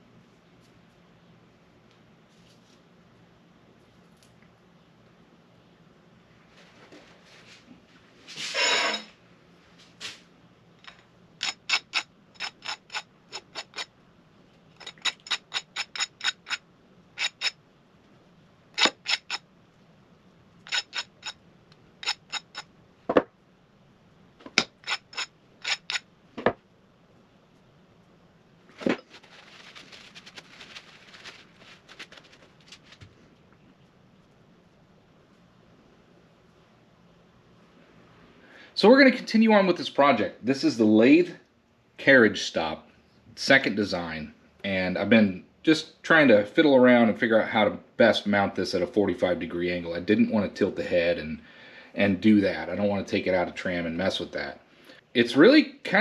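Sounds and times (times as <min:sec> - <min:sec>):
soft rustling hiss: 0:00.0 - 0:05.2, 0:06.2 - 0:11.2, 0:23.8 - 0:39.0.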